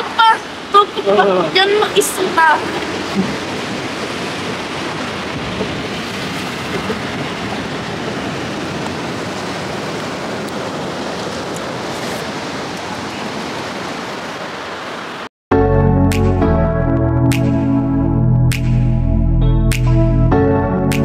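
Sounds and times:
ocean surf breaking on rocks: 0.0s - 15.3s.

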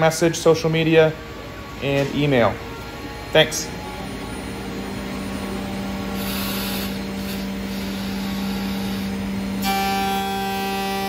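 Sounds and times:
high multi-tone whine: 0.0s - 11.0s
router machine humming: 2.7s - 11.0s.

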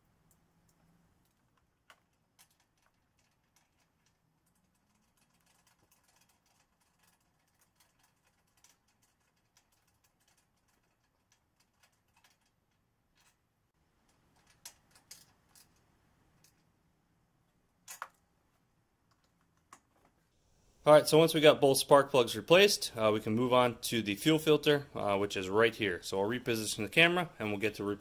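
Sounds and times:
faint metallic clicks and taps: 14.0s - 16.8s.

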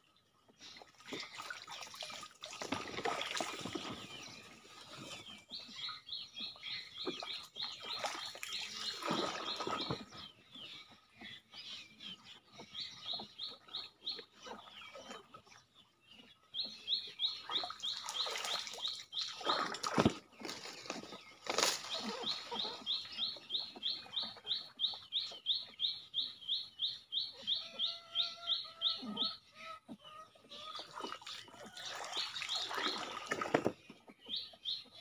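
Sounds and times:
water sloshing and splashing: 0.4s - 5.6s, 6.9s - 10.3s, 17.5s - 24.6s, 30.7s - 34.1s.

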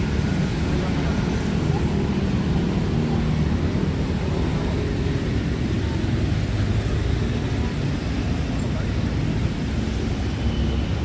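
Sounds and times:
city street traffic rumble: 0.0s - 11.0s.

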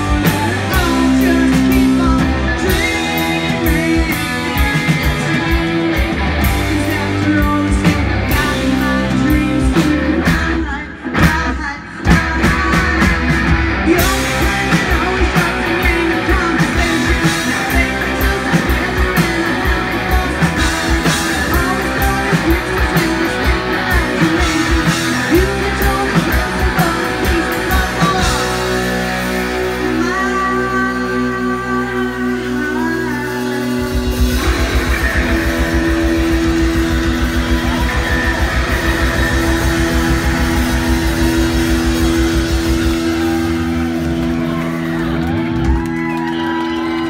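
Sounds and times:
woman singing: 0.0s - 5.6s, 6.4s - 34.5s
rock band playing: 0.0s - 47.0s.

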